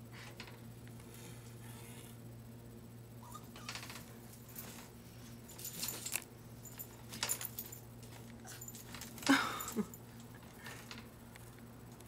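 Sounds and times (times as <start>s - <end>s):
puppy whimpering: 3.2s - 3.8s
pen gate rattling: 3.6s - 4.2s.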